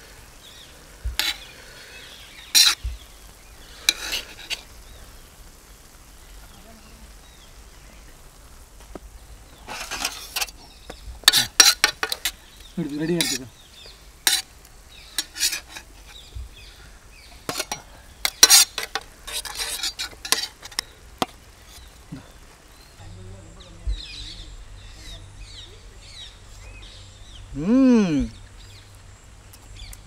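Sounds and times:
faint sizzle: 0:00.0 - 0:30.0
metal spatula scraping griddle: 0:02.5 - 0:02.8, 0:03.8 - 0:04.7, 0:09.6 - 0:10.6, 0:11.2 - 0:12.4, 0:13.0 - 0:13.5, 0:14.2 - 0:14.5, 0:15.1 - 0:16.2, 0:17.4 - 0:21.9.

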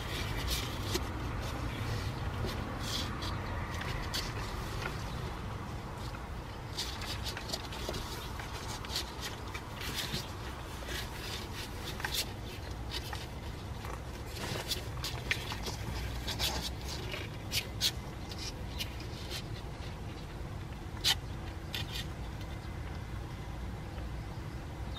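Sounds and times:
claws scrabbling on cardboard: 0:00.0 - 0:23.0.

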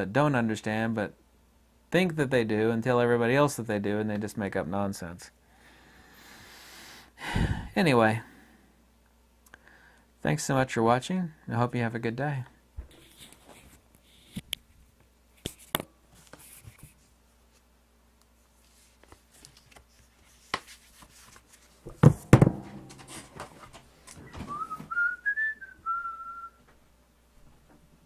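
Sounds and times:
leather chair knocks and rustling: 0:21.9 - 0:23.7
short wavering whistle: 0:24.3 - 0:26.6.

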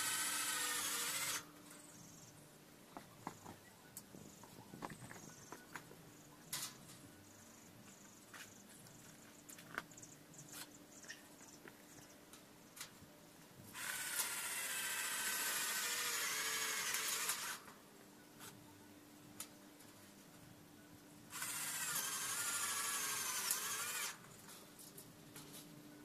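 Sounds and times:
power drill running: 0:00.0 - 0:01.5, 0:13.8 - 0:17.7, 0:21.3 - 0:24.2.

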